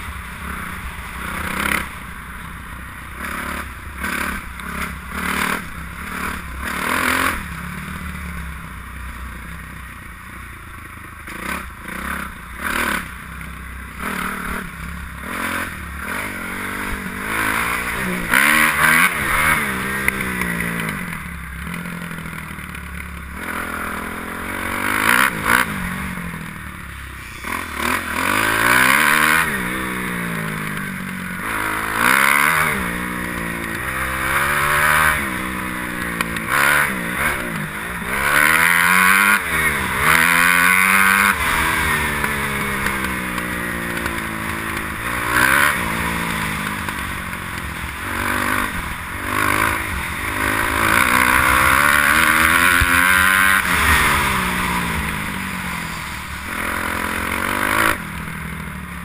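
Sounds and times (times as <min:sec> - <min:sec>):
motocross engine revving: 0:00.3 - 0:02.0, 0:03.1 - 0:08.0, 0:11.3 - 0:13.2, 0:13.9 - 0:59.0.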